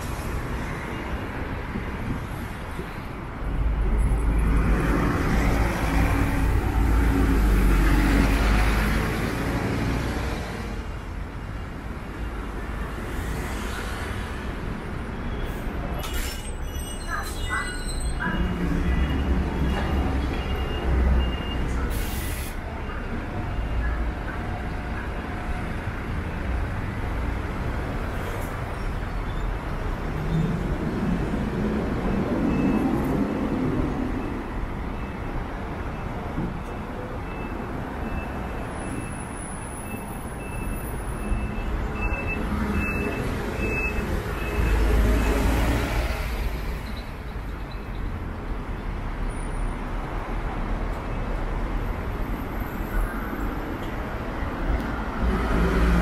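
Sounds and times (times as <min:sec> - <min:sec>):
traffic engine rumble: 0:00.0 - 0:56.0
short hiss: 0:21.9 - 0:22.6.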